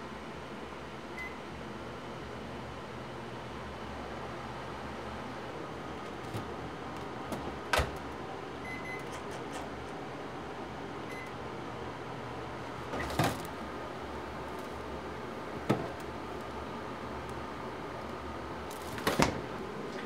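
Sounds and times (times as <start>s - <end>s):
appliance humming: 1.2s - 20.0s.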